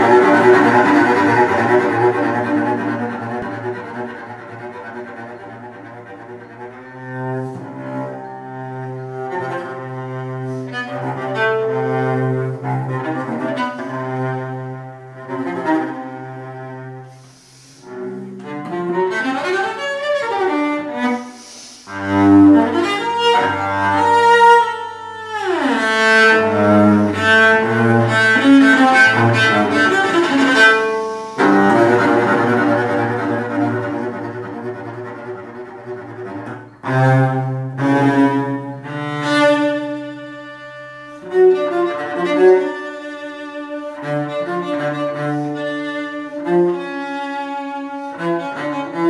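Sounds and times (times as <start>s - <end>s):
solo bowed cello: 0.0s - 49.0s.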